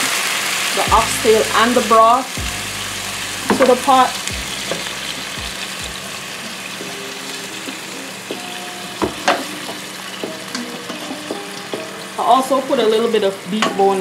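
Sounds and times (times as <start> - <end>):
meat sizzling in a frying pan: 0.0 - 14.0
wooden spoon knocking a pan: 3.5 - 6.0, 8.3 - 11.9.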